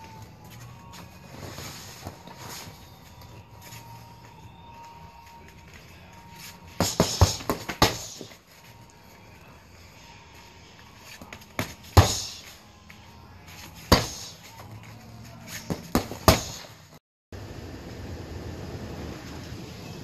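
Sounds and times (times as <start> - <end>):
punches and kicks on heavy bag: 6.8 - 8.4, 11.6 - 12.4, 13.9 - 14.4, 15.7 - 16.7.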